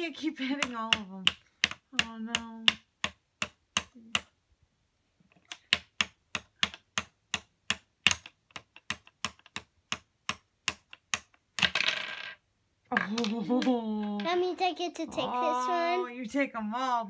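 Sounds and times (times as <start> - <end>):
toy hammer tapping plastic: 0.4 - 4.3, 5.4 - 11.7.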